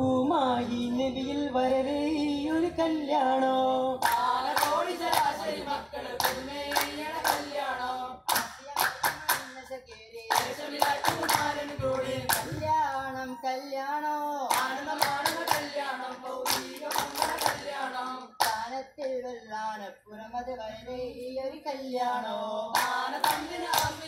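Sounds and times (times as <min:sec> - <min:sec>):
men singing in a group: 0:00.0 - 0:24.0
rapid rhythmic handclaps: 0:04.0 - 0:13.0, 0:14.5 - 0:18.9, 0:22.7 - 0:24.0.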